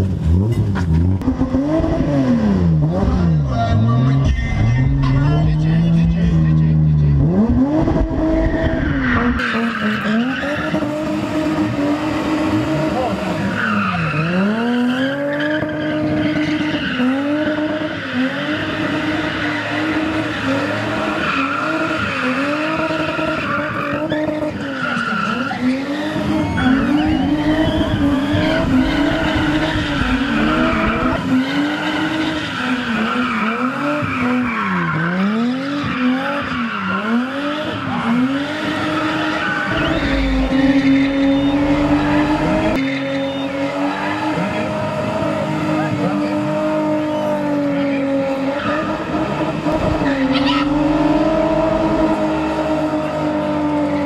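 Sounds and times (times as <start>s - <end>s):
car engine revving high: 0.0s - 54.0s
tyres screeching: 13.4s - 44.8s.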